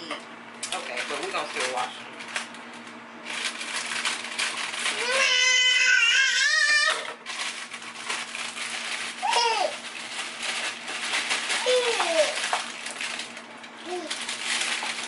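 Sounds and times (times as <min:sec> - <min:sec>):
toddler babbling: 0:04.9 - 0:07.0, 0:09.2 - 0:09.8, 0:11.6 - 0:12.4, 0:13.8 - 0:14.1
potatoes clattering: 0:07.2 - 0:15.0.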